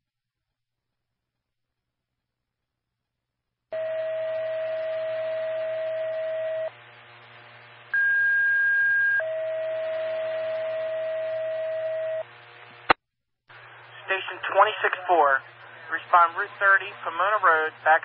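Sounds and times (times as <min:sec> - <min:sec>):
radio hiss: 0:12.6 - 0:18.0.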